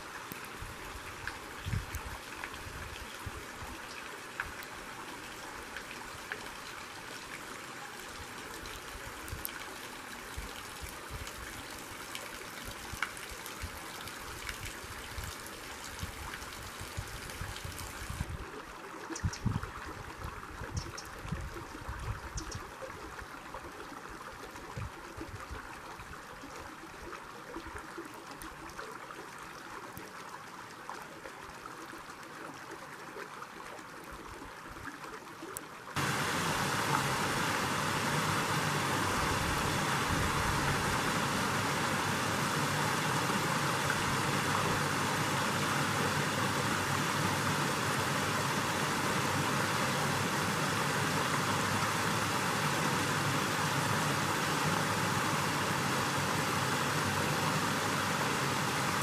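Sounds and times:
creek rushing: 36.0s - 59.0s.

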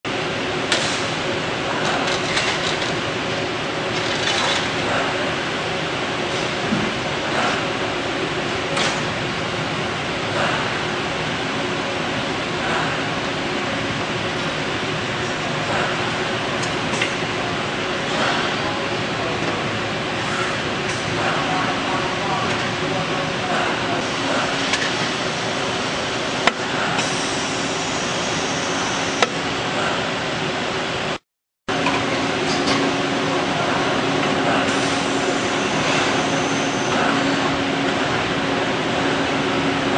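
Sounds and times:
machine hissing and humming: 0.1s - 39.9s
machine mechanical rattle and hiss: 0.6s - 5.5s, 18.0s - 18.6s, 23.5s - 30.0s, 31.8s - 37.5s.

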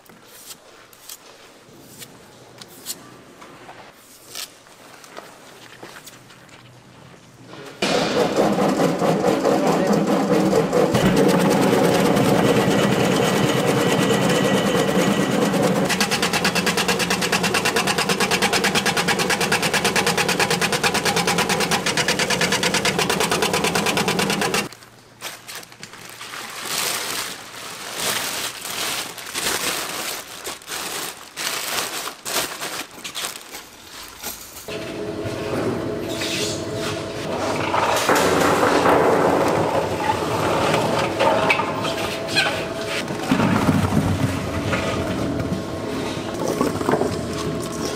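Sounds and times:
electric shredder rattling: 8.4s - 24.7s, 37.3s - 45.7s.

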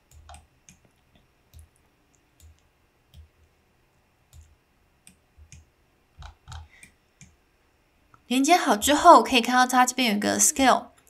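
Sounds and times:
computer mouse clicks: 0.1s - 3.6s, 4.3s - 7.4s.

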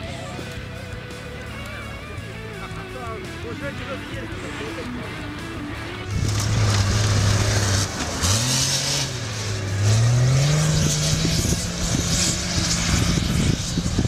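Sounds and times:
engine working hard: 0.0s - 14.0s
steady rushing noise: 2.7s - 14.0s.

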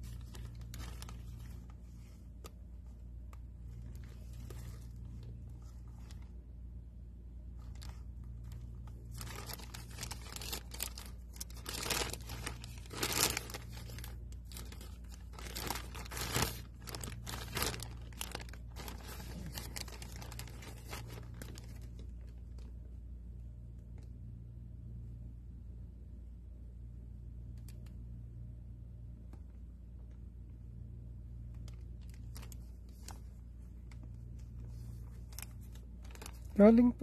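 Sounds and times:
plastic bag tearing and crinkling: 0.0s - 2.0s, 3.6s - 6.3s, 7.6s - 22.7s, 31.6s - 37.0s.

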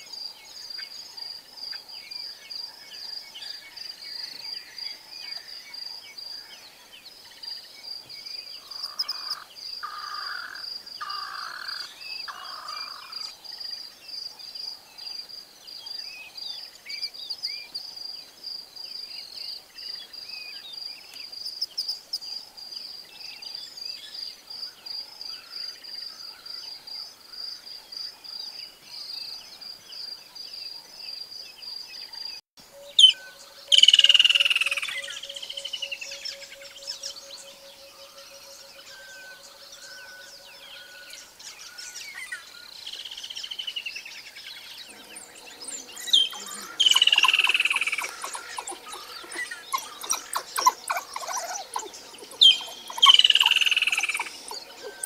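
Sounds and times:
bird chirps: 32.0s - 55.0s
insect high trill: 32.6s - 42.7s, 44.6s - 55.0s.

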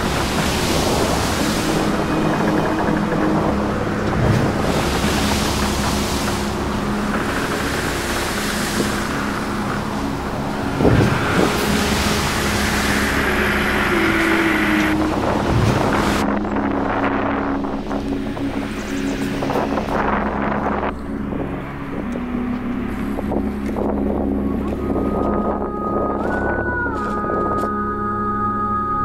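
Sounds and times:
wind buffeting microphone: 0.0s - 27.9s
steady low hum: 0.0s - 29.0s.

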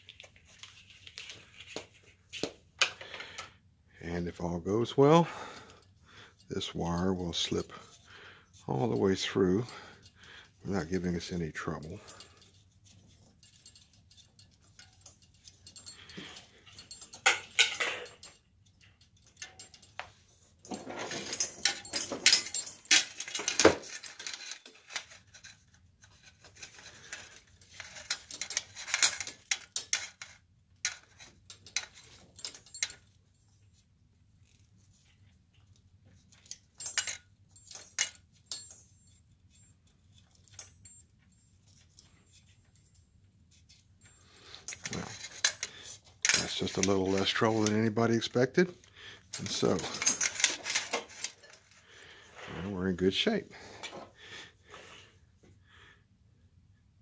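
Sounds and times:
metal rustling and scraping: 0.0s - 3.4s, 4.3s - 55.5s
small metal clinks: 11.6s - 52.3s.

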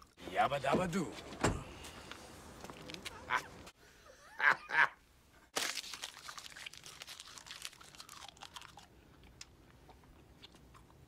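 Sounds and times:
person chewing crunchy food: 5.6s - 11.0s.

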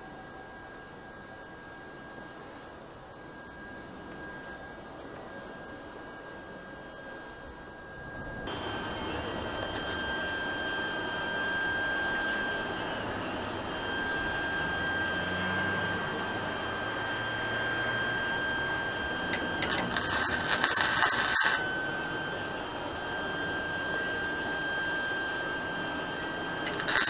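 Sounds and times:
high whine and hiss: 0.0s - 27.0s
welder arc crackling: 19.3s - 21.6s, 26.6s - 27.0s.

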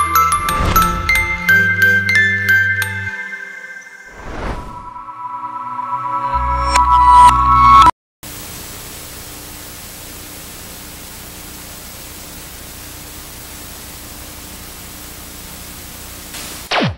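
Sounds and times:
loud music ending: 0.0s - 3.3s
television static hiss: 8.3s - 16.7s.

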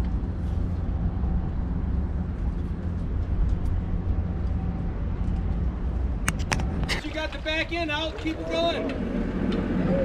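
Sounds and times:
outboard motor droning: 8.2s - 10.0s.

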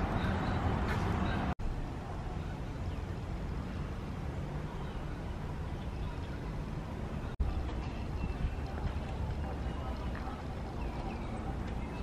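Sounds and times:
wind buffeting microphone: 4.2s - 12.0s.

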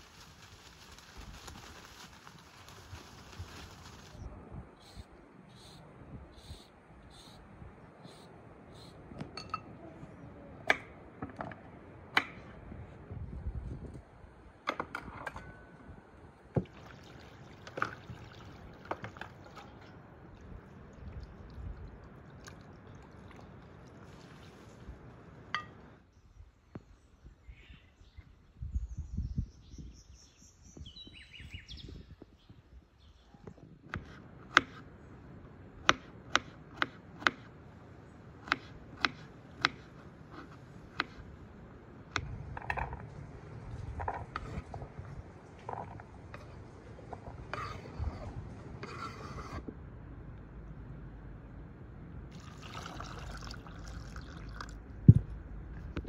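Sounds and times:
water sloshing in a bowl: 16.6s - 25.7s, 52.3s - 54.9s.

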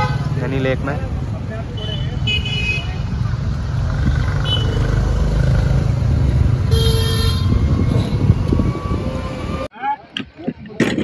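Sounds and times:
road traffic rumble: 0.0s - 11.0s
vehicle horn tooting: 6.7s - 8.2s.

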